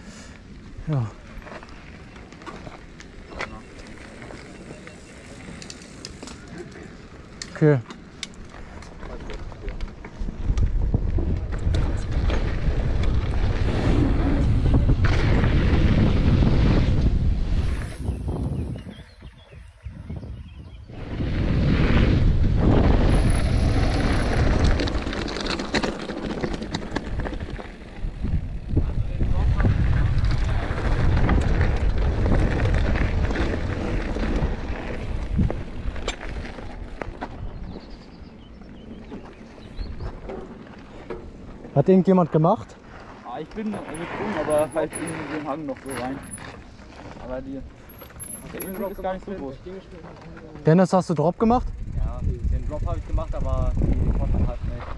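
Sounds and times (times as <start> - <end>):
bike tyres rumbling on dirt: 0.1 - 54.9
bike clicks and knocks: 5.4 - 13.4, 23.2 - 28.0, 38.7 - 41.8
wind buffeting microphone: 8.5 - 41.6, 51.4 - 54.9.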